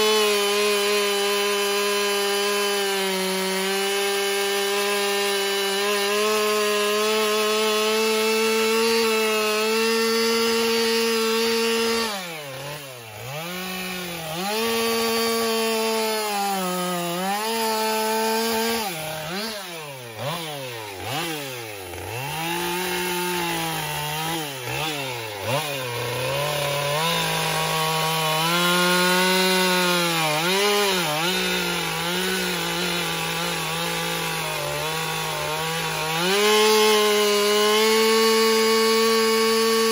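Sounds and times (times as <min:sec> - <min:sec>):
chainsaw revving: 0:00.0 - 0:39.9.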